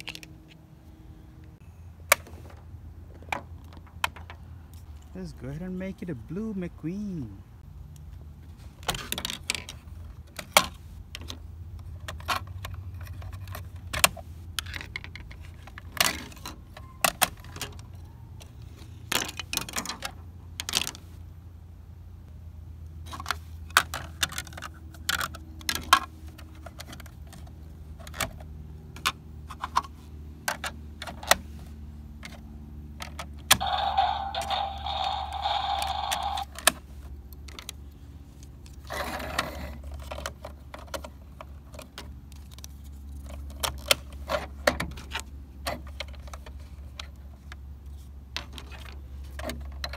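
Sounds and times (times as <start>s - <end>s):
plastic panels clicking and clacking: 8.8s - 18.5s, 19.1s - 21.0s, 23.1s - 31.5s
low hum: 33.6s - 36.6s.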